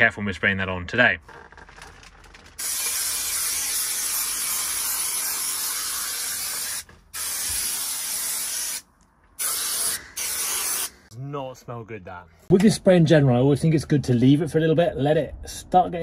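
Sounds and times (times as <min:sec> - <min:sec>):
aerosol can spraying: 0:02.6 - 0:08.8, 0:09.4 - 0:11.0.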